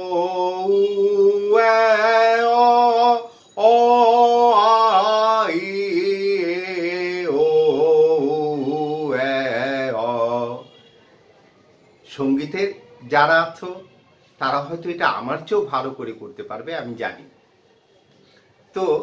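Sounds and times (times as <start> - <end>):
man singing vowels: 0.0 - 10.8.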